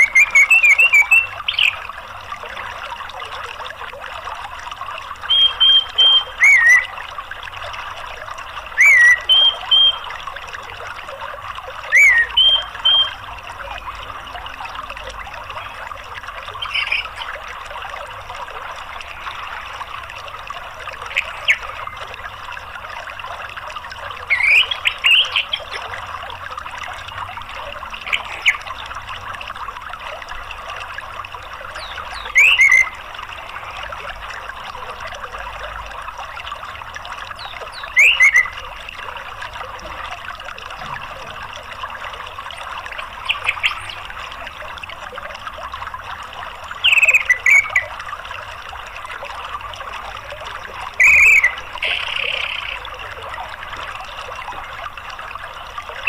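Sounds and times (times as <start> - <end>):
thrush calls: 0.0 - 1.8, 5.3 - 6.9, 8.8 - 10.1, 11.9 - 13.2, 31.8 - 33.0, 51.0 - 52.8
stream running water: 0.0 - 56.0.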